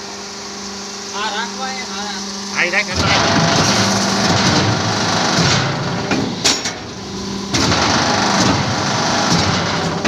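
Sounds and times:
block machine motor hum: 0.0s - 10.0s
sharp metallic knocks: 3.0s - 6.9s.

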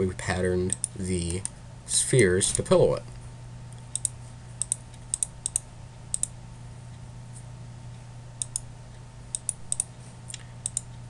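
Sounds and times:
steady low hum: 0.0s - 11.0s
computer mouse clicking: 3.8s - 6.3s, 8.4s - 8.7s, 9.3s - 9.9s, 10.6s - 10.9s.

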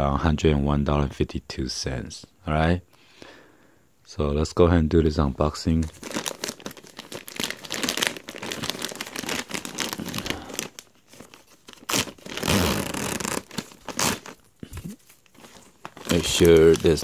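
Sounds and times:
plastic bag tearing and crinkling: 5.8s - 17.0s.

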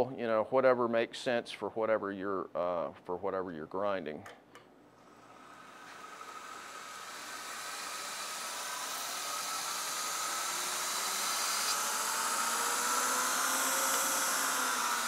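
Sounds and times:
belt grinder whine: 5.0s - 15.0s.

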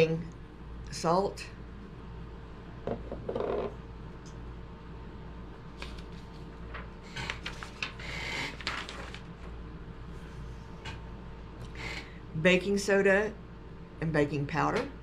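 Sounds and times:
clicks and taps on table: 2.9s - 3.7s
paper rustle: 5.7s - 9.6s.

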